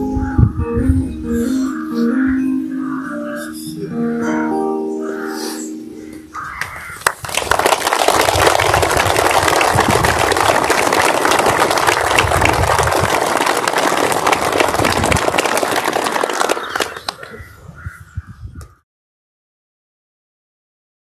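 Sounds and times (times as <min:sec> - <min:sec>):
crowd applauding: 0:06.6 - 0:17.4.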